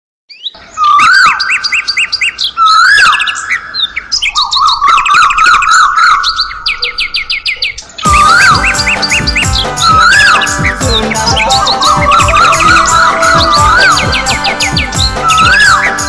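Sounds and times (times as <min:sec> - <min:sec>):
songbird chirping and trilling: 0:00.3 - 0:16.0
music: 0:08.0 - 0:16.0.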